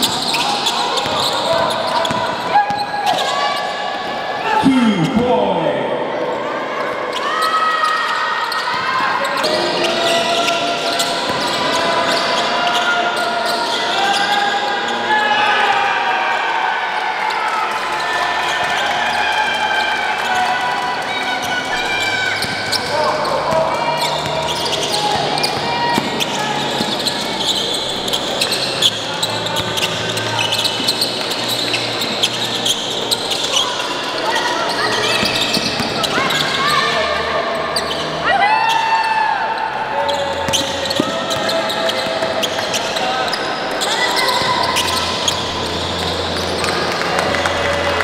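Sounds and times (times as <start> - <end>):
sneaker squeaks: 0.0 - 3.8, 7.1 - 15.0, 21.4 - 37.0, 37.7 - 38.8, 40.0 - 46.7
people chattering: 0.0 - 48.0.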